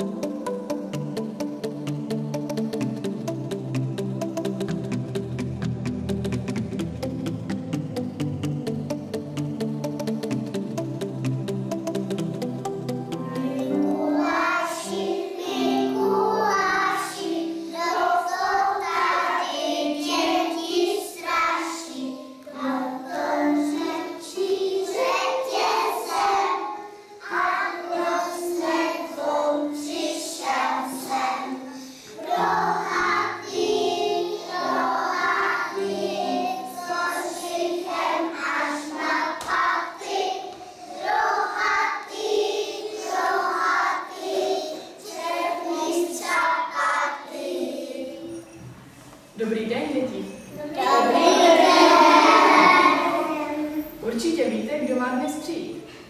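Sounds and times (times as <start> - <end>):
young children singing: 13.1 - 48.6, 50.5 - 54.0.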